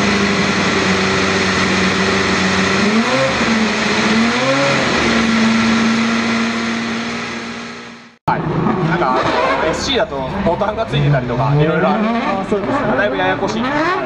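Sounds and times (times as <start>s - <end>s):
engine revs blipped: 0.0s - 10.0s.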